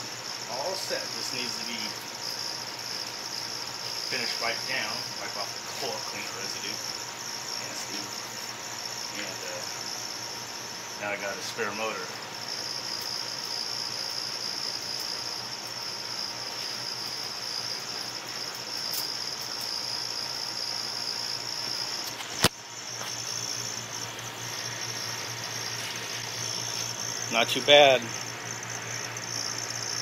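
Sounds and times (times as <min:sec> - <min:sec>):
sharp click: 0:22.0 - 0:22.6.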